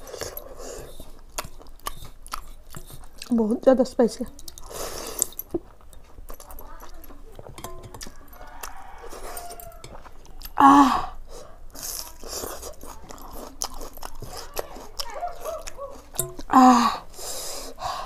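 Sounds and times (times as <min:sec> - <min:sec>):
lip smacks: 0:00.0 - 0:03.4
person chewing: 0:00.0 - 0:03.6, 0:04.2 - 0:18.0
breath hissing: 0:04.7 - 0:05.4, 0:16.7 - 0:18.0.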